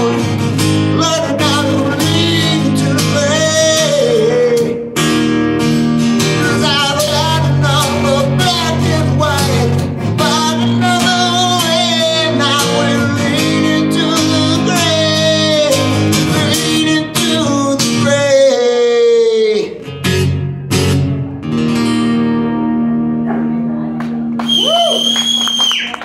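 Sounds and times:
man singing: 0.0s - 5.1s, 6.1s - 20.0s
acoustic guitar strumming: 0.0s - 24.3s.

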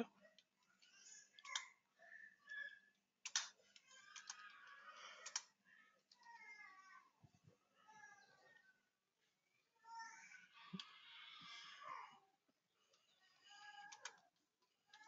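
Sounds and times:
faint keyboard typing: 0.0s - 1.7s, 2.4s - 7.4s, 12.8s - 15.0s.

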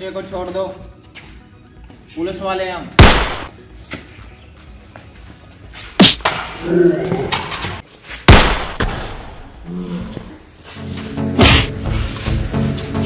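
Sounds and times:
loud sharp bangs: 3.0s - 3.5s, 8.3s - 9.4s.

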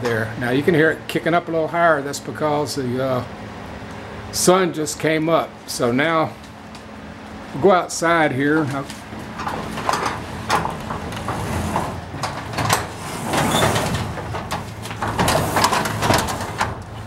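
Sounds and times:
garage door rumbling and rattling: 7.5s - 17.0s.

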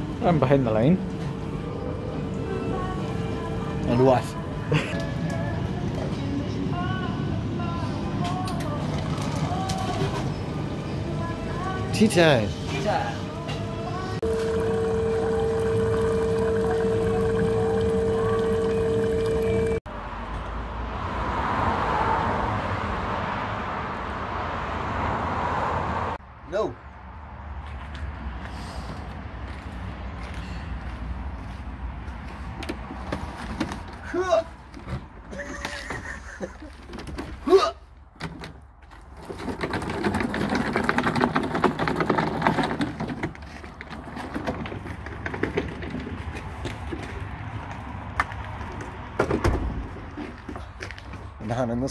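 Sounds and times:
outdoor traffic noise: 0.0s - 51.9s
hot-drinks machine humming: 13.5s - 19.8s
speaker cabinet rolling on casters: 14.0s - 19.8s, 38.9s - 47.7s.

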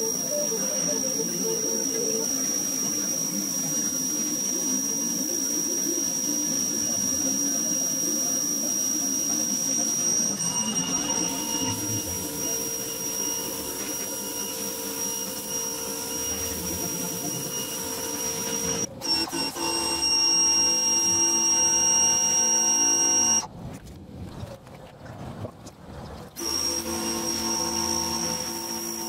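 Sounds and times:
water jet hissing: 0.0s - 19.8s
pressure washer motor whining: 0.0s - 23.5s, 26.4s - 29.0s.

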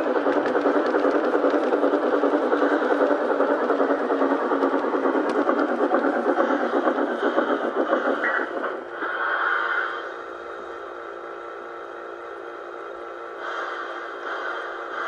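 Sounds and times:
model train wheels rattling: 0.0s - 8.7s
motor hum: 0.0s - 15.0s.

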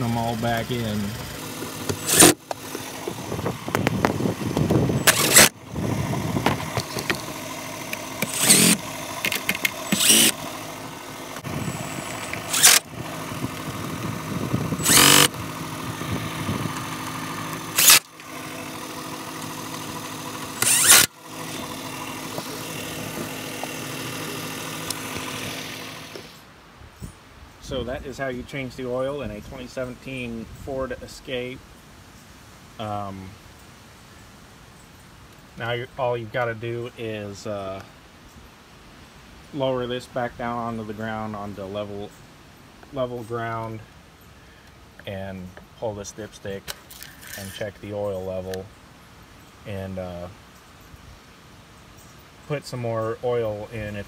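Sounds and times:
steady hum: 0.0s - 26.7s
cordless drill driving screws: 1.4s - 3.9s, 4.6s - 5.6s, 6.5s - 10.5s, 12.0s - 12.9s, 14.7s - 15.4s, 17.0s - 18.4s, 19.4s - 26.4s.

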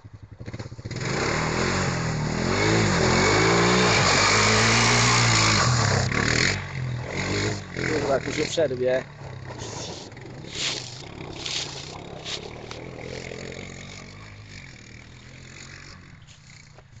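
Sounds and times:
quad bike engine running: 0.0s - 17.0s.

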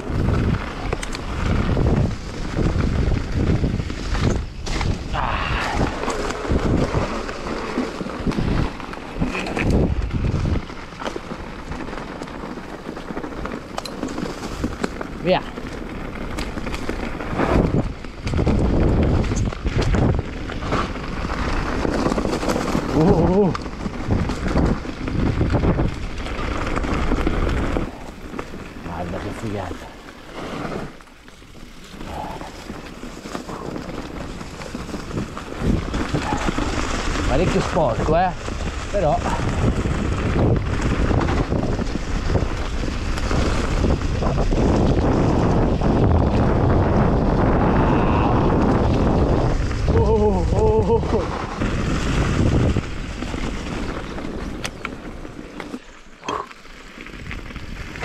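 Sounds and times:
wind buffeting microphone: 0.0s - 56.3s
bike tyres rolling on dry leaves: 0.0s - 58.0s
tyres rustling over leaves: 20.3s - 47.7s.

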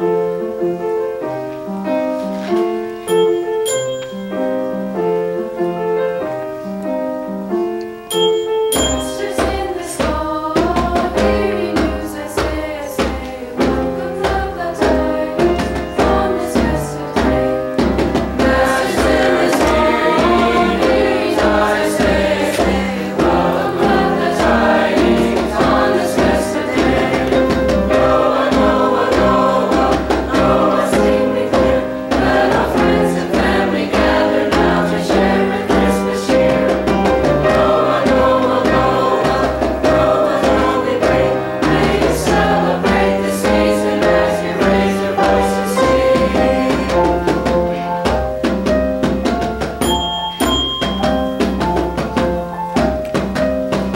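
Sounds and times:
piano accompaniment: 0.0s - 53.9s
mixed choir singing: 8.2s - 48.6s
djembe drum beating: 8.8s - 53.9s.

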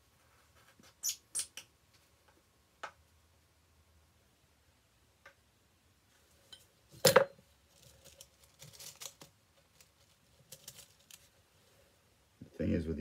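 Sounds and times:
rustles and small clicks: 6.5s - 11.4s.

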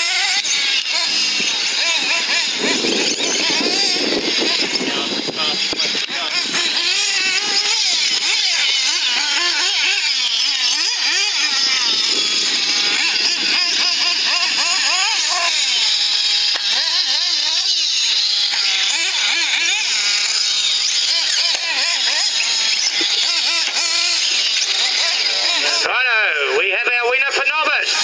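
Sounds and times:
small engines revving: 0.0s - 26.4s, 27.4s - 28.0s.

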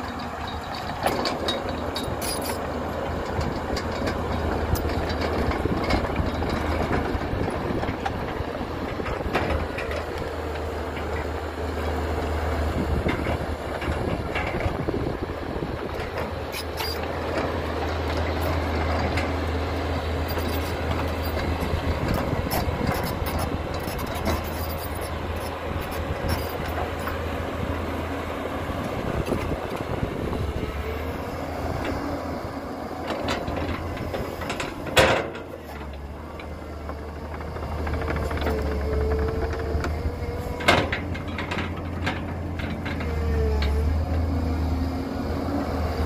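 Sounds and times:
metal clanks and knocks: 0.0s - 8.3s, 33.0s - 36.5s, 37.2s - 43.8s
excavator diesel engine droning: 0.0s - 46.0s.

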